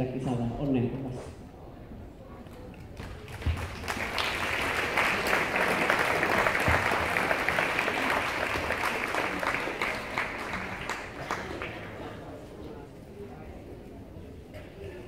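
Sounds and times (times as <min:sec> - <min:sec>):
audience applauding: 0:02.8 - 0:12.3.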